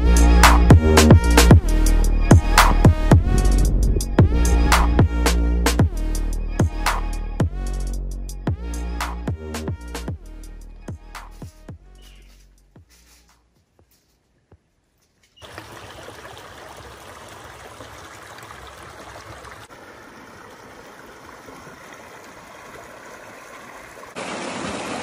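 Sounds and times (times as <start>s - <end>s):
creek water trickling: 15.2s - 25.0s.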